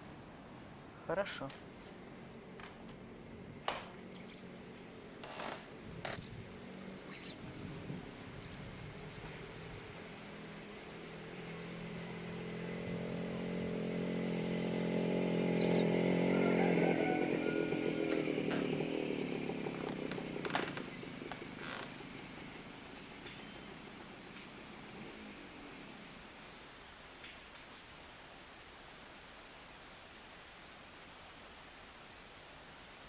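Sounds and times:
motor droning: 0:11.3 - 0:26.0.

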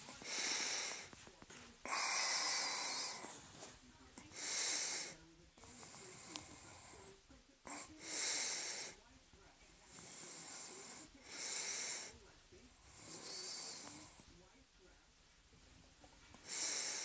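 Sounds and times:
person breathing heavily: 0:00.0 - 0:01.2, 0:01.8 - 0:03.7, 0:04.3 - 0:07.1, 0:07.7 - 0:09.0, 0:09.9 - 0:12.2, 0:16.4 - 0:17.0.

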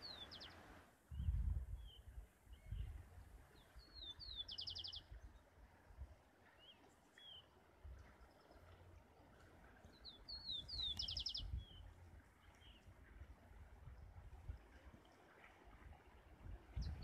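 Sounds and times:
songbird singing: 0:00.0 - 0:05.6, 0:06.4 - 0:13.2, 0:16.8 - 0:17.0
wind rumble on microphone: 0:01.0 - 0:06.2, 0:09.6 - 0:17.0.

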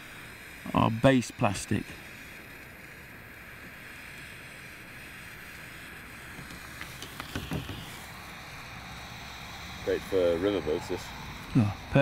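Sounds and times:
gas torch hissing: 0:00.0 - 0:12.0.

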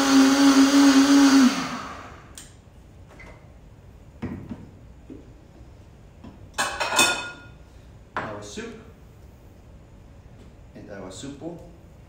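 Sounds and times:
blender motor winding down: 0:00.0 - 0:02.3.

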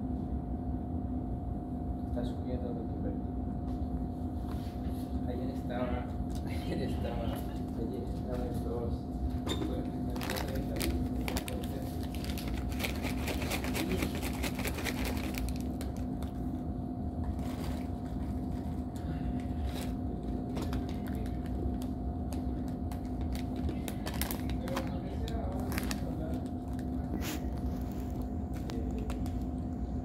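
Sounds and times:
steady low hum: 0:00.0 - 0:30.0
plastic bag crinkling: 0:10.0 - 0:16.4, 0:19.5 - 0:29.5.

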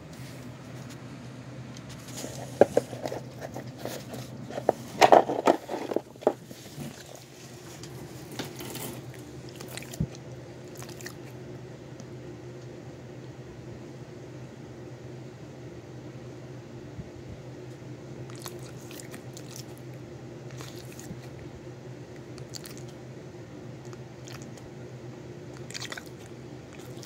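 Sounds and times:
steady low hum: 0:00.0 - 0:27.0
dog crunching bone: 0:20.5 - 0:21.2, 0:25.6 - 0:26.2.

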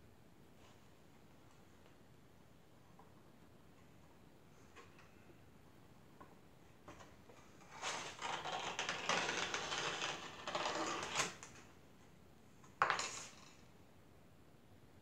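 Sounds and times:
wire scraping through clay: 0:07.6 - 0:11.5.

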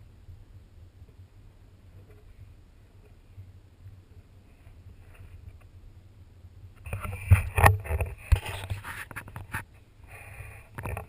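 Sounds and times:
scraping and rustling: 0:04.2 - 0:05.7, 0:06.8 - 0:11.0.

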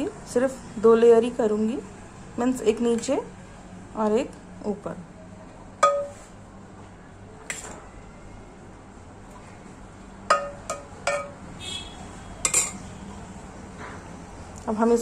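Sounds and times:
spoon clinking against pot: 0:05.8 - 0:06.3, 0:10.3 - 0:11.4, 0:12.4 - 0:12.9.

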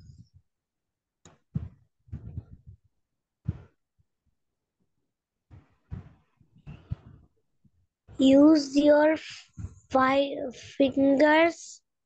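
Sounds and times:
soft low thumps: 0:01.3 - 0:03.8, 0:05.5 - 0:08.3.

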